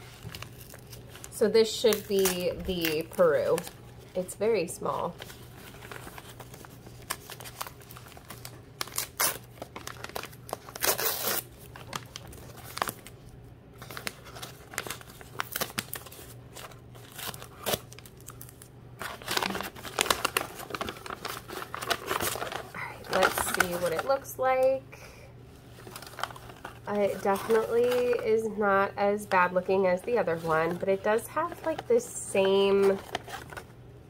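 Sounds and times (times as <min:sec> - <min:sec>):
paper tearing and crumpling: 0:00.0 - 0:03.8, 0:05.2 - 0:13.1, 0:13.8 - 0:24.2, 0:25.8 - 0:28.2
tape peeling: 0:06.2 - 0:12.1.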